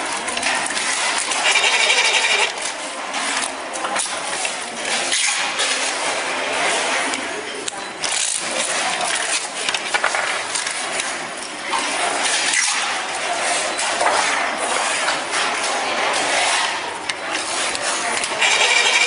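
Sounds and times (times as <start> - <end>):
coil-winding machine whirring: 18.4 - 19.0.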